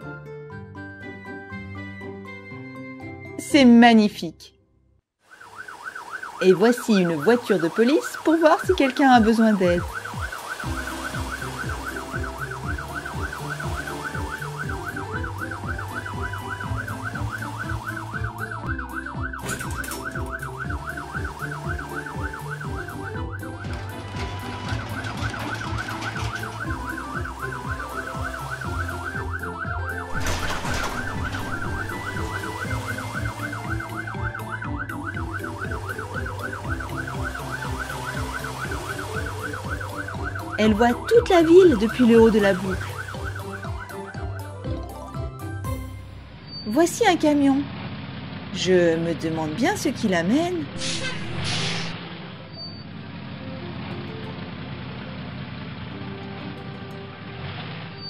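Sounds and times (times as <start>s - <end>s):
cartoon police siren warbling: 5.2s - 45.1s, 50.1s - 52.0s
background music with bass: 10.3s - 46.4s.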